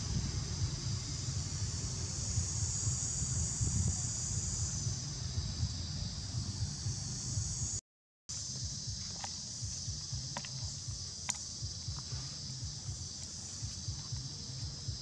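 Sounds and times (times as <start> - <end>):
wind rumble on microphone: 0.0 - 7.8
insects droning: 0.0 - 15.0.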